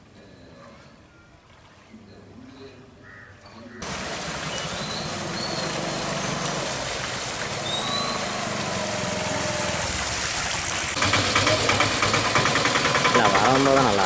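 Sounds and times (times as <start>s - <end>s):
water splashing: 3.7s - 14.0s
rapidly pulsing auto-rickshaw engine: 3.8s - 14.0s
small motorcycle engine: 11.0s - 14.0s.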